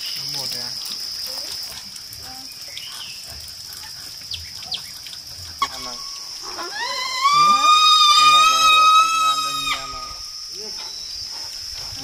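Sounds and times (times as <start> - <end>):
crickets chorus: 0.0 - 12.0.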